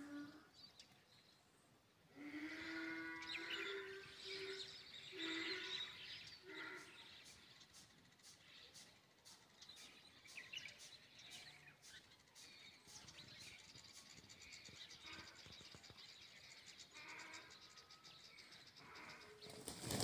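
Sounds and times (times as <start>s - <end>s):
small birds chirping: 0.0s - 20.0s
wings flapping: 19.4s - 20.0s.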